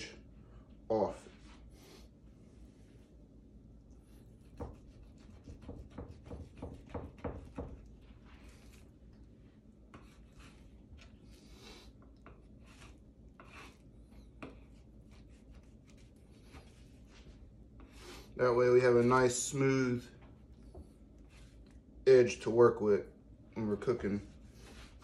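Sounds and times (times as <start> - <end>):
knife cutting meat on wooden board: 4.4 - 8.8.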